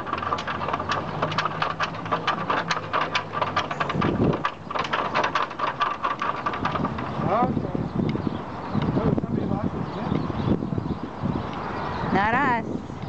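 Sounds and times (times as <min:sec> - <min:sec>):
footsteps on bridge: 0:00.0 - 0:07.3
swinging bridge slats clattering: 0:00.0 - 0:07.9.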